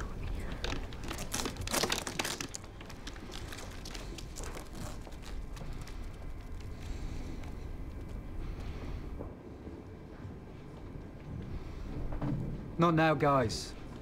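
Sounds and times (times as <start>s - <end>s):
rustling crinkling handling noise: 0.0s - 8.2s.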